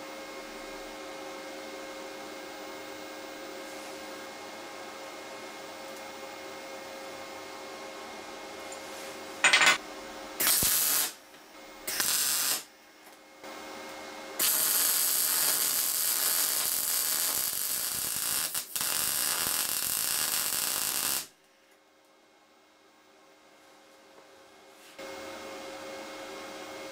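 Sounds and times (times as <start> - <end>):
electric welding arc humming: 9.4 - 9.8, 10.4 - 11.2, 11.8 - 12.7, 14.4 - 21.4.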